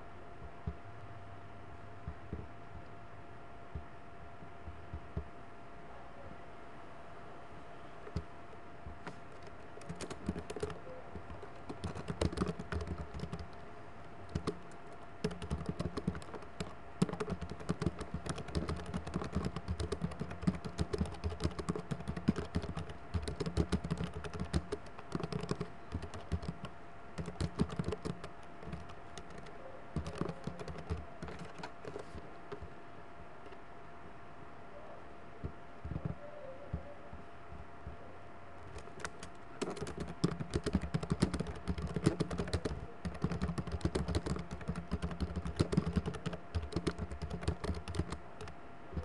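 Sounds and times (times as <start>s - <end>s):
faint electrical hum: 0.0s - 49.0s
typing on computer keyboard: 9.3s - 13.6s, 14.3s - 32.6s, 38.6s - 49.0s.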